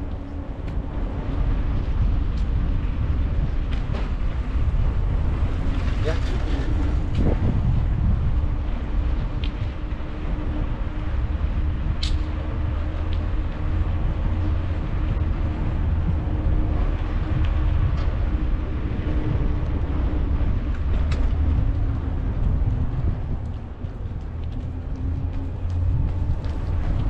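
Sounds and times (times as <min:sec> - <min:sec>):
wind rumbling on microphone: 0:00.0 - 0:27.0.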